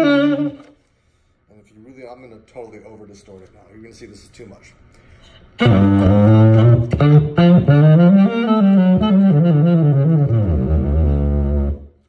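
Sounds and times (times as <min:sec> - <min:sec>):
distorted saxophone phrase: 0:00.0 - 0:00.7, 0:05.6 - 0:12.0.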